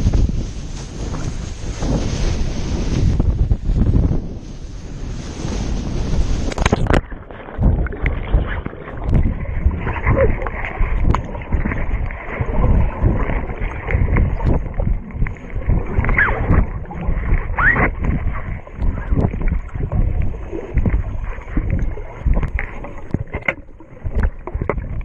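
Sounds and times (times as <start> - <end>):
underwater bubbling and churning: 0.0 - 25.0
wind over microphone: 0.0 - 25.0
plunge into water: 6.4 - 25.0
small bubble clicks and pops: 6.5 - 18.2, 18.8 - 25.0.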